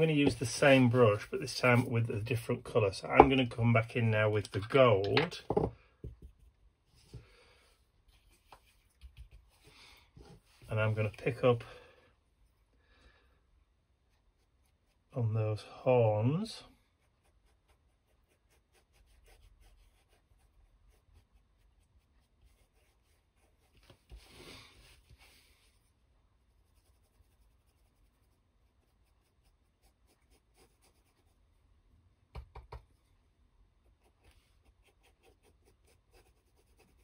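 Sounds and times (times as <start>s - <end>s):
scrape: 0.0s - 2.1s, 22.5s - 25.9s
paintbrush brushing: 0.0s - 2.4s, 16.9s - 31.4s.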